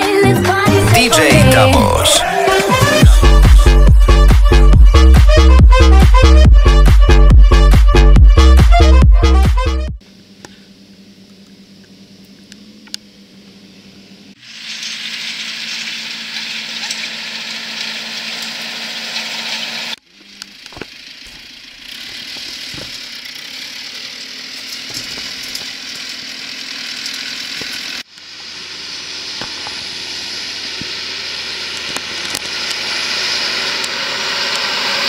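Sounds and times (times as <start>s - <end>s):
tractor engines running: 14.7s - 35.0s.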